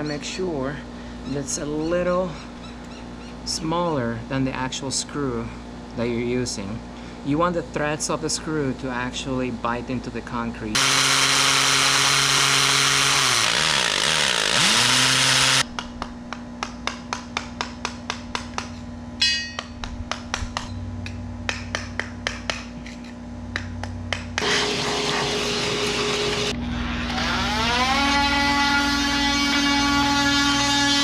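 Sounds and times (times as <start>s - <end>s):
drill boring into concrete: 10.7s - 15.6s, 24.4s - 31.0s
cordless drill running up: 10.8s - 15.6s, 24.4s - 31.0s.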